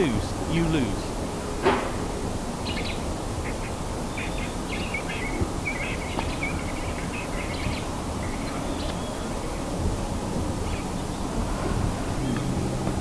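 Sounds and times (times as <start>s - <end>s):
steady background hiss: 0.0s - 13.0s
bird chirps and calls: 2.6s - 9.7s.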